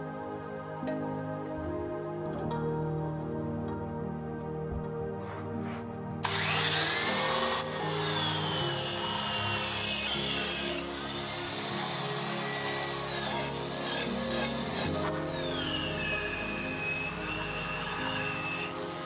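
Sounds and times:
power tool rasping with whine: 6.2 - 19.0.

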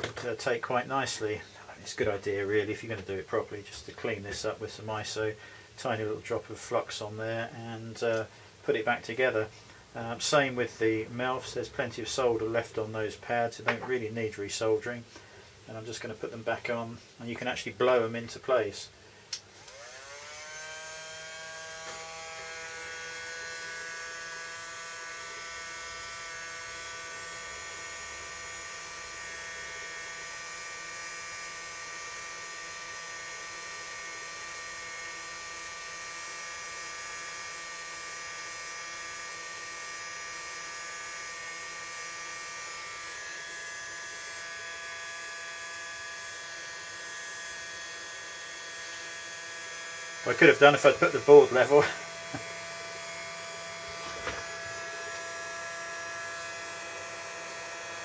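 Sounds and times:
hot air gun fan whine: 18.6 - 58.0.

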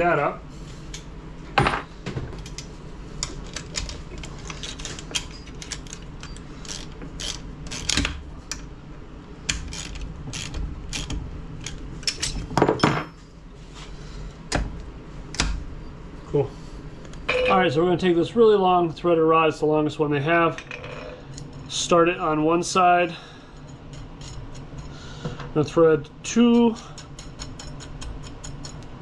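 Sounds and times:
wrench metal clicks and clinks: 26.6 - 28.9.

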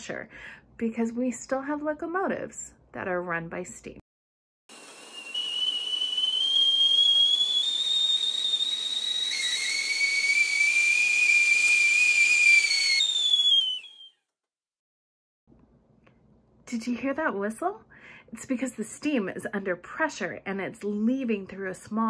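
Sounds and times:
steam hissing: 4.7 - 12.9
kettle whistling: 4.7 - 14.2.

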